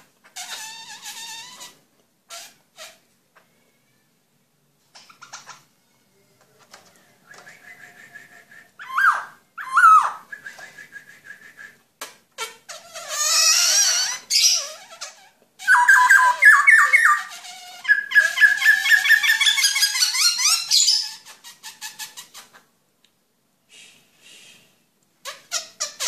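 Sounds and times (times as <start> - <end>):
bird singing whistled phrases: 7.4 - 11.8, 15.7 - 17.3.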